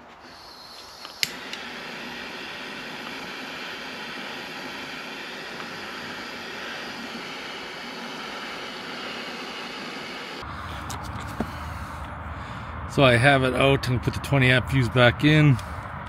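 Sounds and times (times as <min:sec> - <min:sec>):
butane torch hissing: 0:00.0 - 0:12.0.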